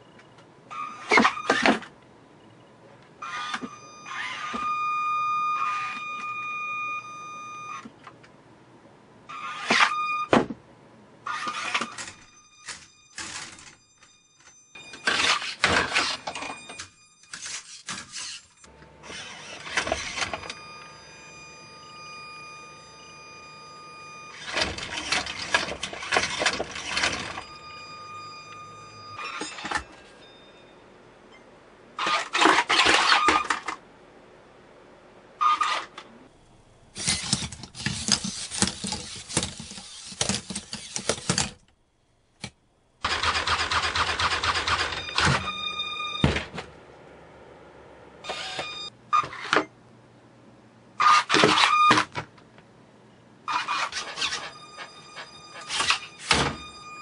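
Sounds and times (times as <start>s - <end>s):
servo motors whirring: 37.0s - 41.5s.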